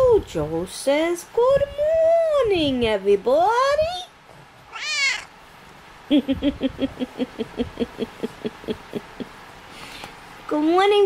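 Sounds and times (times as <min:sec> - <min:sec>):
cat meowing: 0:04.7 - 0:05.3.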